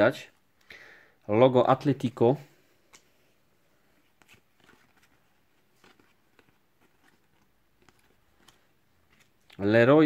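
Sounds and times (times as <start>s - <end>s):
trading cards ticking and rustling: 4.2s - 10.0s.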